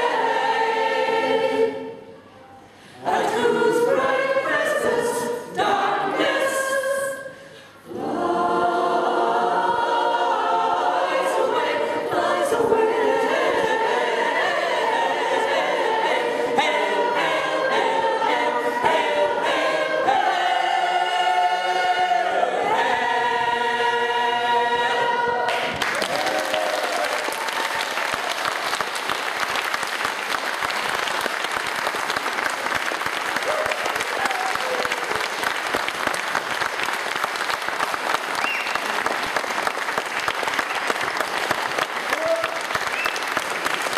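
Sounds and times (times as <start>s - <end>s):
mixed choir singing unaccompanied: 0.0s - 2.2s, 2.9s - 25.9s
audience applauding: 25.5s - 43.9s.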